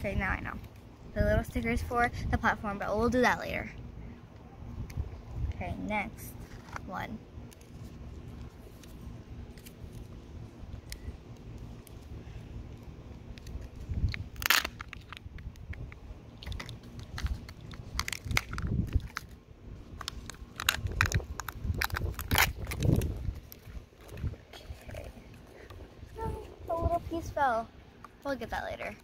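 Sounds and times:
plastic capsule crunches and clicks: 0:13.2 - 0:19.4, 0:20.0 - 0:25.8.

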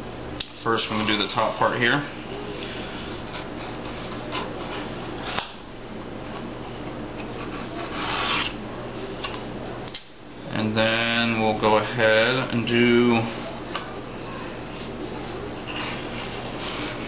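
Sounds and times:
edge beveler scraping leather: 0:07.4 - 0:08.6.

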